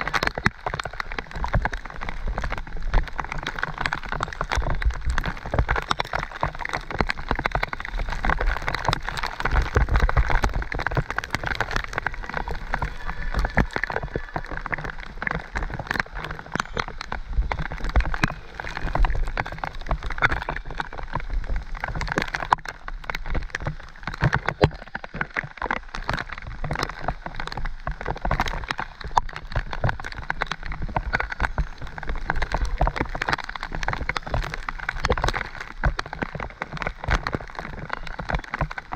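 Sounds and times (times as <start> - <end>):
bike clicks and knocks on trail: 0.0 - 38.9
heavy rain: 0.0 - 38.9
low rumble: 9.8 - 20.2.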